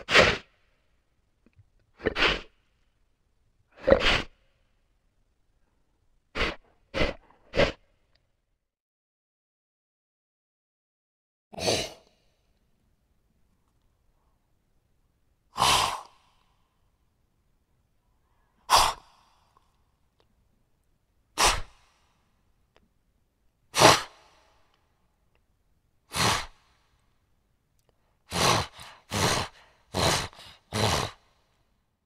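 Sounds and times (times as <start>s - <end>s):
animal snorting: 0.0s - 0.5s, 2.0s - 2.6s, 3.8s - 4.4s, 6.3s - 7.9s, 23.8s - 24.2s, 26.1s - 26.6s, 28.3s - 31.3s.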